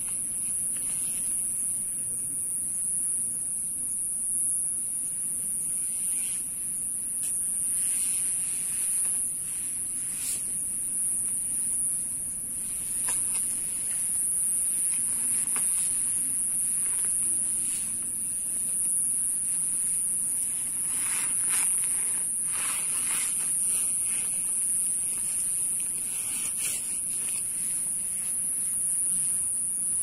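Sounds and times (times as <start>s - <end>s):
steady high-pitched hiss: 0.0s - 30.0s.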